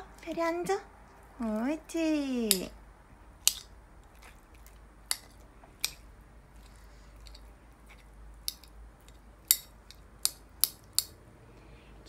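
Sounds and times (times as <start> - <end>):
utensil cutting wet dog food: 3.4 - 11.2
utensil clicking on ceramic dish: 3.5 - 3.7, 5.1 - 6.0, 7.2 - 11.1.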